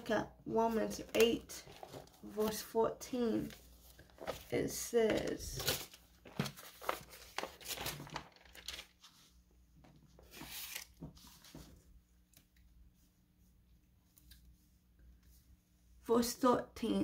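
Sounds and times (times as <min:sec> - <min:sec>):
paper pages rustling: 0:00.9 - 0:02.7, 0:03.3 - 0:09.4, 0:10.1 - 0:12.5.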